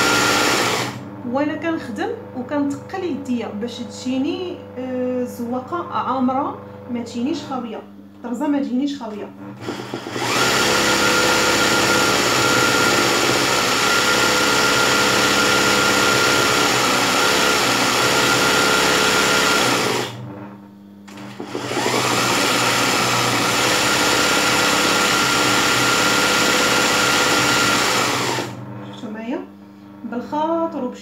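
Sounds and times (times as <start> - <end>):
sewing machine whining: 0.0 - 1.0, 9.5 - 20.2, 21.1 - 28.6.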